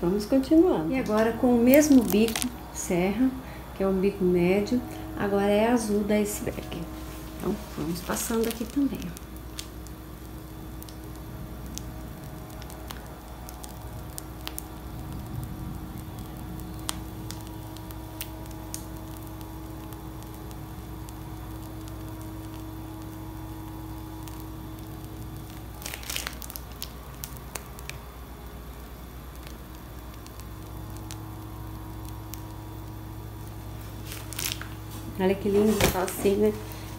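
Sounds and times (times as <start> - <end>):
piping bag squishing cream: 1.0 - 2.8, 4.9 - 36.9
plastic rustle: 1.1 - 2.6, 6.4 - 10.0, 25.0 - 28.1, 33.6 - 36.9.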